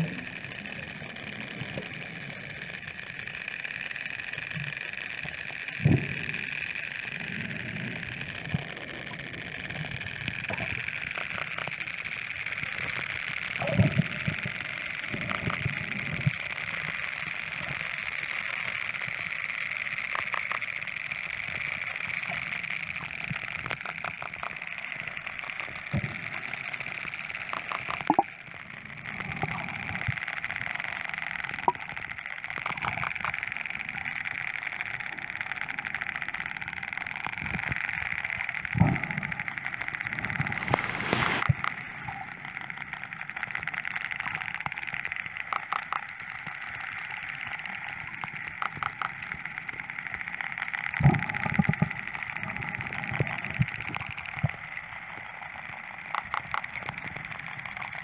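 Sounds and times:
underwater sea hiss: 0:40.2 - 0:41.8.

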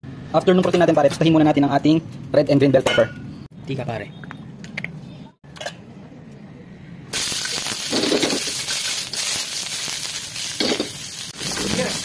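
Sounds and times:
vegetables sizzling in hot oil: 0:07.1 - 0:12.0.

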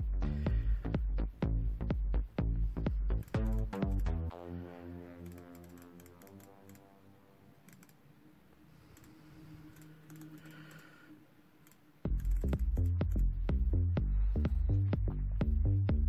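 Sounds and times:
soft synth music: 0:00.0 - 0:16.0
keyboard and mouse clicks: 0:03.2 - 0:04.2, 0:05.2 - 0:06.9, 0:07.6 - 0:08.1, 0:08.9 - 0:10.8.

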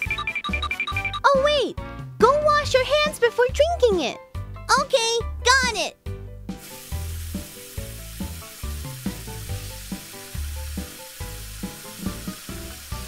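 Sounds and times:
background music with bass line: 0:03.8 - 0:13.0
tap water running into sink: 0:06.5 - 0:13.0.

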